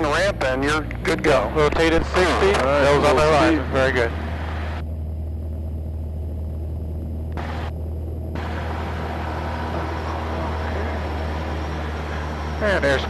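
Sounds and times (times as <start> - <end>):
plane engine drone: 0.0 - 13.0
rushing noise: 8.4 - 13.0.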